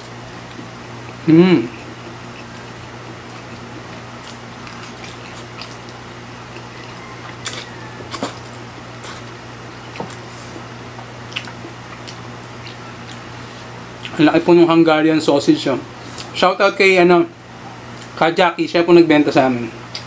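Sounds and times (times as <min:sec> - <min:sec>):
people slurping and chewing noodles: 0:00.0 - 0:14.1.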